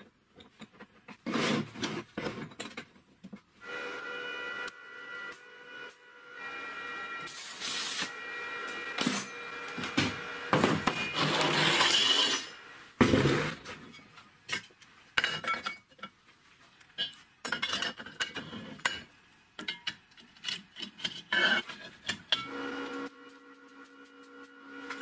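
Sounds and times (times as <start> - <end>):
metal scraping and sliding: 0.4 - 2.9, 10.8 - 15.8, 17.0 - 19.1, 19.7 - 23.8.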